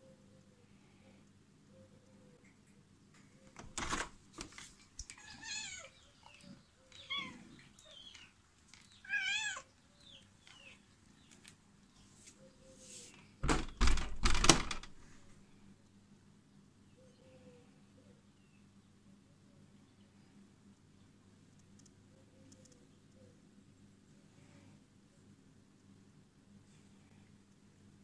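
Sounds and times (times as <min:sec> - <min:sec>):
door handle click and clatter: 0:03.6 - 0:04.2, 0:13.4 - 0:15.1
cats meowing: 0:05.1 - 0:08.3, 0:09.0 - 0:09.8.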